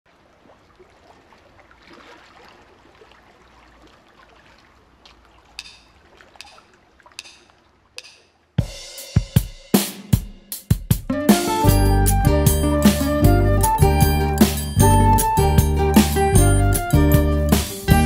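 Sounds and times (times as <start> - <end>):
drumstick count-in clicks: 5.6 - 8.4.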